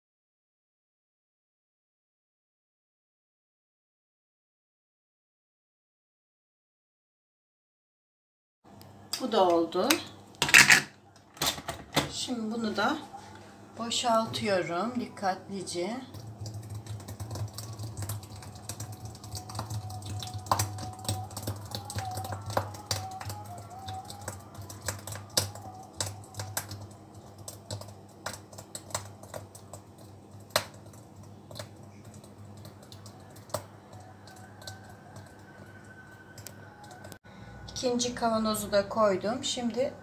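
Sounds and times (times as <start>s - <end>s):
liquid pouring rush: 16.1s - 37.2s.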